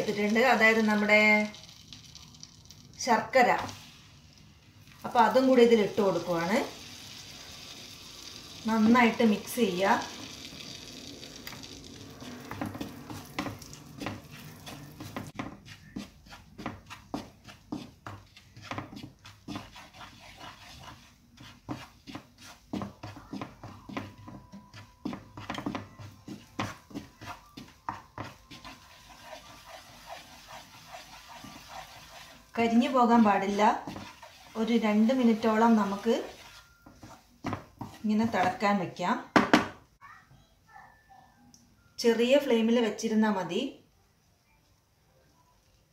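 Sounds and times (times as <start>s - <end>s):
butter sizzling in a frying pan: 0.0s - 38.5s
wooden spatula scraping pan: 8.3s - 39.0s.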